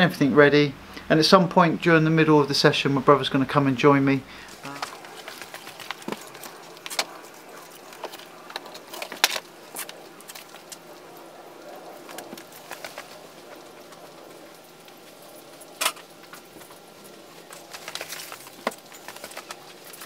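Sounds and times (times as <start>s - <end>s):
fishing gear clicking and knocking: 4.5s - 10.8s.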